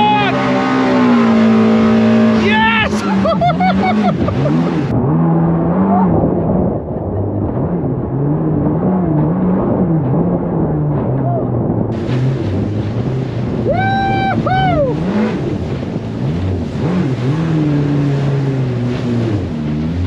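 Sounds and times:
boat engine revving: 0:00.0 - 0:20.0
person shouting or laughing: 0:02.4 - 0:04.6, 0:13.6 - 0:15.0.

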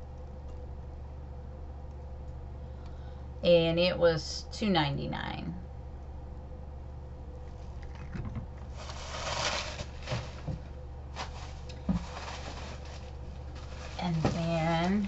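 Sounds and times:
steady low hum: 0:00.0 - 0:15.0
rustling: 0:07.4 - 0:15.0.

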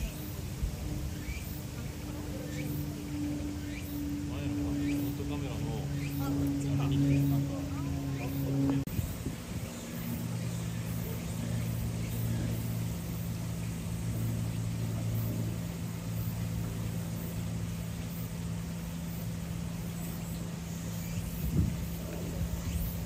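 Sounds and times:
machine humming: 0:00.0 - 0:23.0.

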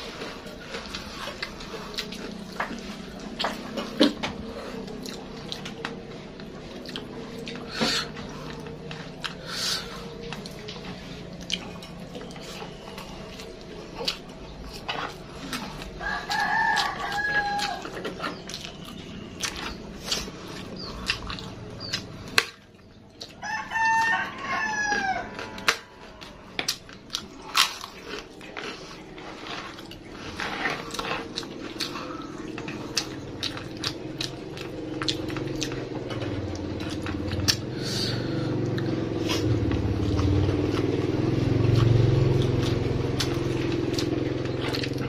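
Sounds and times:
crunching of cracker being chewed: 0:00.0 - 0:45.0
low steady drone: 0:00.0 - 0:45.0
rooster crowing: 0:16.0 - 0:18.0, 0:23.4 - 0:26.3.

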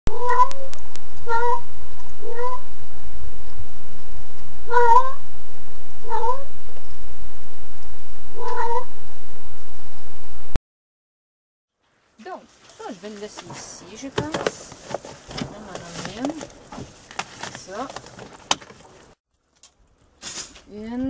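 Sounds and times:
low rumble: 0:00.1 - 0:10.6
cat meowing: 0:04.7 - 0:05.2, 0:08.4 - 0:08.8.

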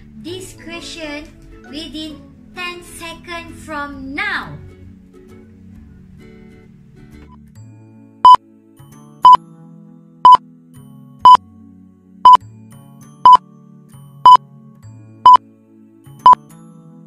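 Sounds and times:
quiet background music: 0:00.0 - 0:17.0.

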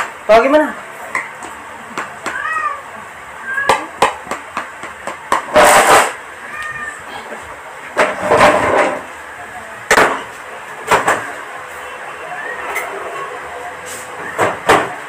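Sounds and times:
plastic chair scraping: 0:05.5 - 0:06.2, 0:08.0 - 0:09.1.

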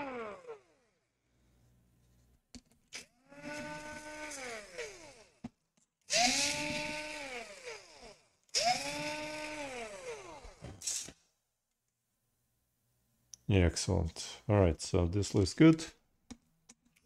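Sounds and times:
small electric motor whining: 0:00.0 - 0:01.1, 0:03.0 - 0:05.4, 0:06.1 - 0:11.2.

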